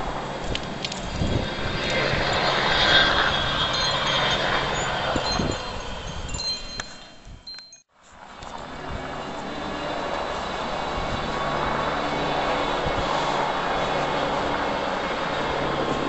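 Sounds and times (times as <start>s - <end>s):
aircraft engine drone: 0.0s - 16.0s
wind chimes ringing: 3.6s - 7.9s.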